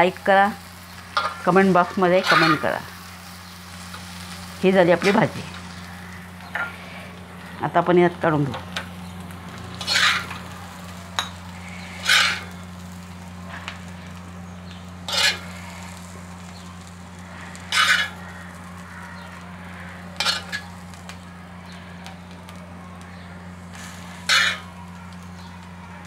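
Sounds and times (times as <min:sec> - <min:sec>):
low hum: 0:00.0 - 0:26.0
steel spoon scraping iron griddle: 0:01.1 - 0:07.2, 0:09.7 - 0:12.8, 0:14.7 - 0:16.6, 0:17.2 - 0:20.9, 0:23.7 - 0:24.8.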